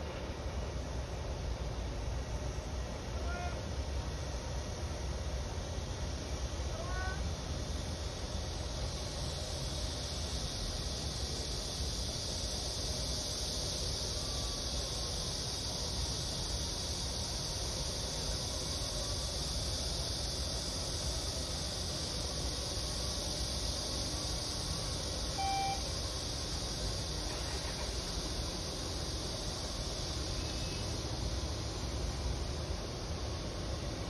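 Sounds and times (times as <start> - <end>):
high-pitched hiss: 0.0 - 34.0
low rumble of traffic: 0.0 - 34.0
short pitched tone: 25.4 - 25.8.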